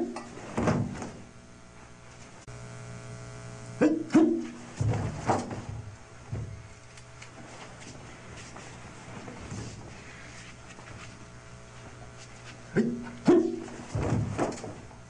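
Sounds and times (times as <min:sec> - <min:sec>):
low steady hum: 0:00.0 - 0:15.0
thumps of stamping and strikes: 0:04.2 - 0:06.6, 0:13.9 - 0:14.8.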